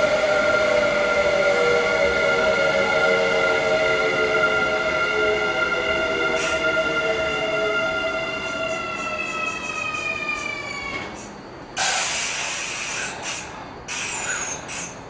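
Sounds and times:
electric train inverter whine: 0.0s - 15.0s
air brake hiss bursts: 11.2s - 15.0s.

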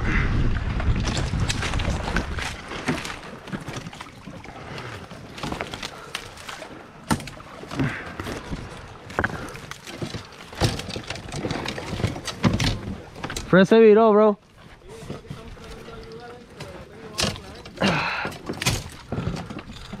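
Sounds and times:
water sloshing around kayak: 0.1s - 20.0s
sharp knocks and clatter: 9.1s - 13.5s.

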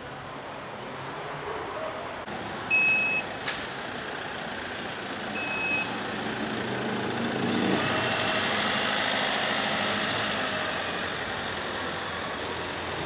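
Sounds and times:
street traffic noise: 0.0s - 13.0s
high electronic beep: 2.7s - 3.3s, 5.4s - 5.9s
van engine running: 3.3s - 13.0s.

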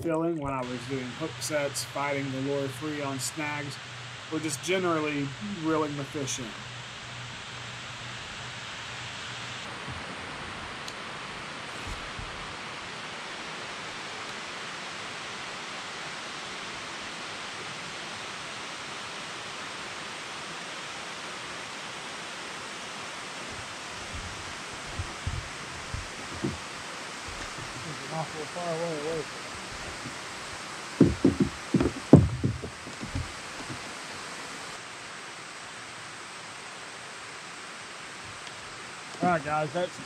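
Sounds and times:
steady rushing outdoor noise: 0.0s - 40.0s
low thumps: 23.5s - 28.4s, 29.1s - 33.9s.

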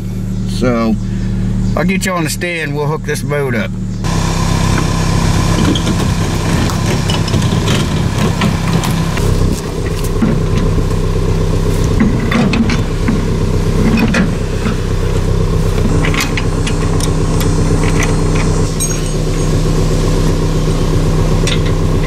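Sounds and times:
truck engine idling: 0.0s - 22.0s
chain rattling: 17.8s - 19.6s.

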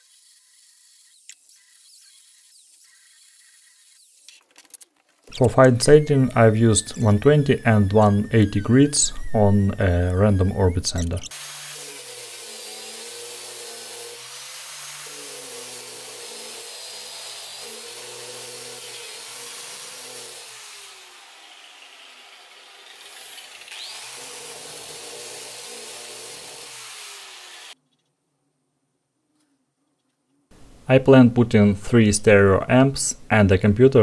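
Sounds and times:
angle grinder sanding wood: 0.0s - 4.4s, 5.3s - 27.8s.

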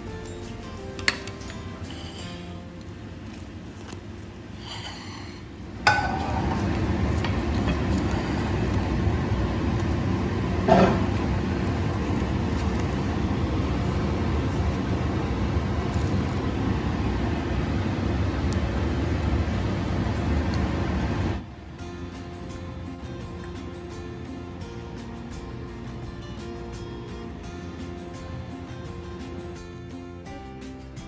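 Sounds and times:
low rumbling noise: 4.2s - 23.3s.

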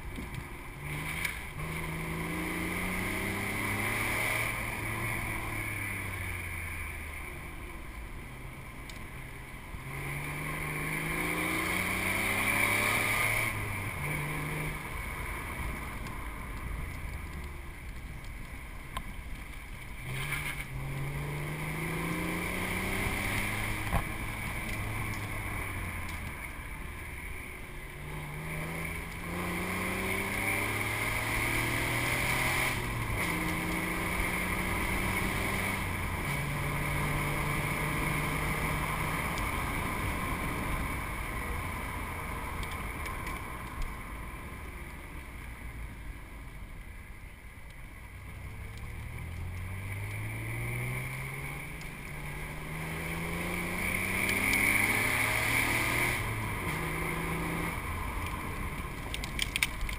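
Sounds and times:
wind and road noise: 0.0s - 59.9s
sports car engine revving: 0.7s - 7.0s, 9.8s - 16.0s, 20.0s - 41.1s, 48.4s - 59.7s.

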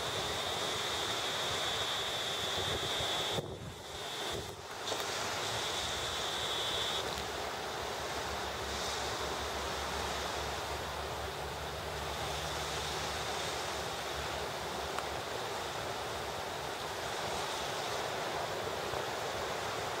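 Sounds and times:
small waves washing ashore: 0.0s - 20.0s
wind buffeting microphone: 2.4s - 4.6s.

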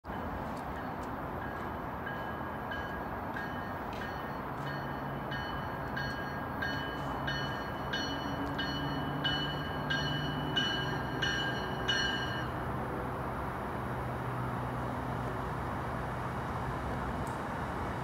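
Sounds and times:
low train drone: 0.0s - 18.0s
train bell ringing: 0.1s - 12.7s.

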